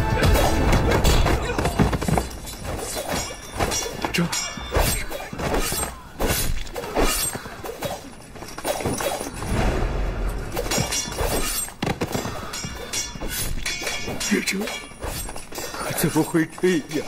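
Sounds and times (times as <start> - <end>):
soundtrack music: 0.0 - 1.2.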